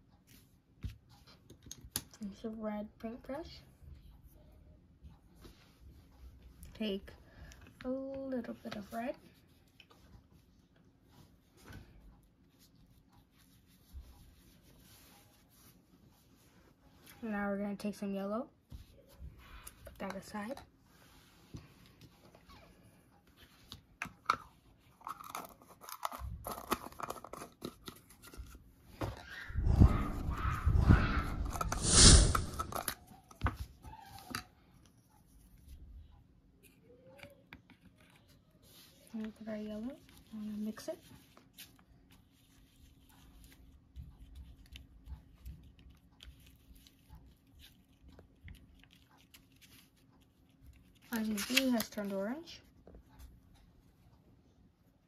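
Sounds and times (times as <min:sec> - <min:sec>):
paintbrush mixing paint on paper: 0:08.4 - 0:17.2, 0:37.6 - 0:51.8
paper rustling and scraping: 0:29.6 - 0:33.0.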